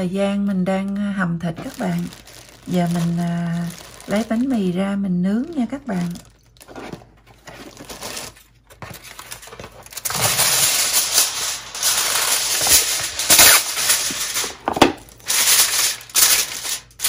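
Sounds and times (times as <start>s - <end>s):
aluminium foil crinkling: 0.7s - 17.0s.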